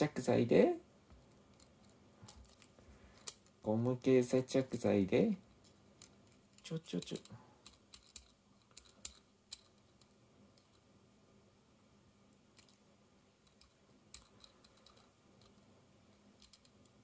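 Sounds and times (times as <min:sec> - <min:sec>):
light clicks of plastic parts: 0:01.1 - 0:03.6, 0:05.5 - 0:10.8, 0:12.5 - 0:12.8, 0:13.4 - 0:17.0.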